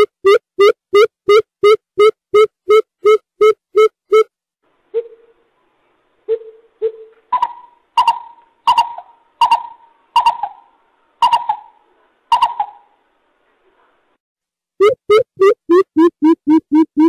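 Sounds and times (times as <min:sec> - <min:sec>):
bird hooting: 0:06.3 - 0:12.9.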